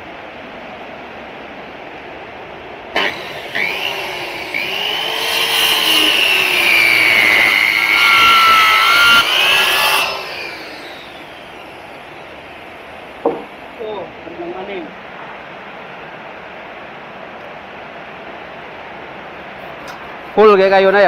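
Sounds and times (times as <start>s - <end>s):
circular saw cutting wood: 3.0s - 13.7s.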